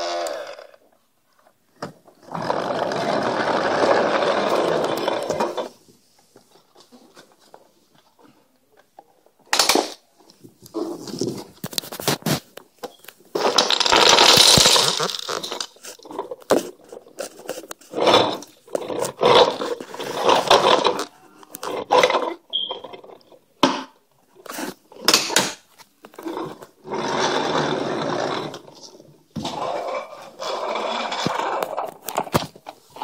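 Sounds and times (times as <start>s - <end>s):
toy truck scraping on wooden floor: 2.1s - 5.8s, 10.7s - 12.6s, 13.3s - 23.4s, 24.3s - 25.2s, 25.8s - 33.0s
toys clattering: 2.3s - 5.8s, 9.0s - 10.0s, 10.9s - 33.0s.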